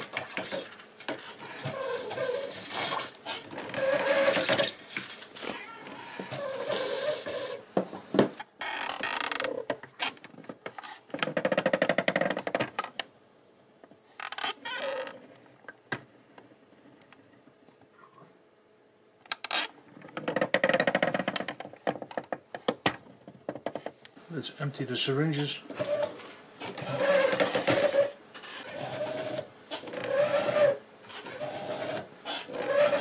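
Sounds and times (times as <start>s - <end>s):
pedal mechanism squeaking: 1.4s - 4.8s, 5.5s - 7.6s, 25.8s - 33.0s.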